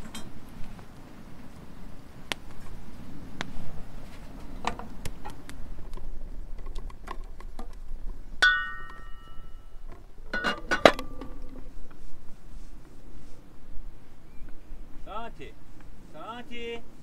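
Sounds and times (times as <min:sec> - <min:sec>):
wooden sticks clattering on metal: 0:08.4 - 0:09.6, 0:10.3 - 0:11.6
ringing metal clinks: 0:08.4 - 0:09.8.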